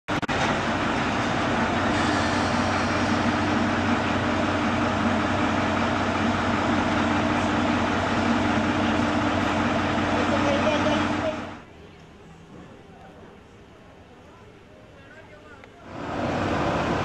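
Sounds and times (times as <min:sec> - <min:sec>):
diesel railcar droning: 0:00.1 - 0:11.8, 0:15.8 - 0:17.0.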